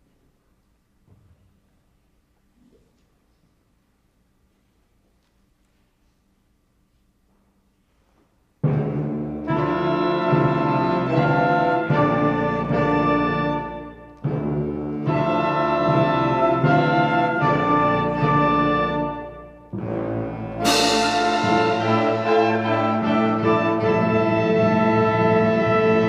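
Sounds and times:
concert band playing chords: 20.6 - 25.2.

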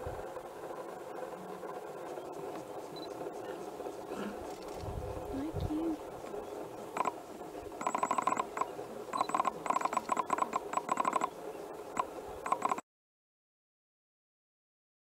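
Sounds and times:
animal rapid trilling calls: 2.8 - 7.2, 7.8 - 12.8.

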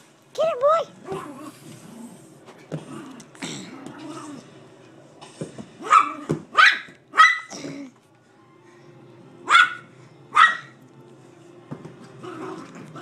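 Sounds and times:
dog barking excitedly: 5.8 - 7.5, 9.5 - 10.8.

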